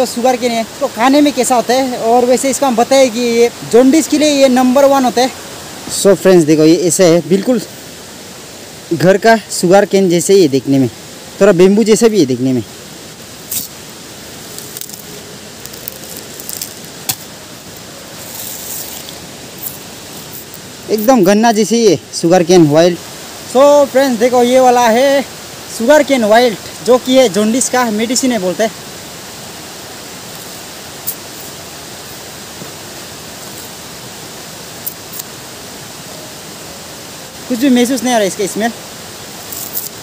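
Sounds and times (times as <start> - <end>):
fast-flowing water rushing: 0.0 - 40.0
cane stems rustling and clicking: 14.4 - 21.7, 39.5 - 40.0
machete striking stem: 16.6 - 17.3.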